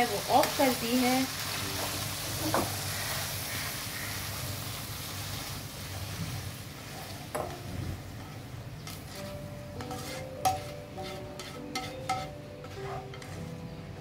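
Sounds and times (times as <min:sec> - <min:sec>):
meat sizzling in oil: 0:00.0 - 0:14.0
spatula scraping pan: 0:08.2 - 0:13.6
spatula knocking on pan: 0:09.8 - 0:10.7.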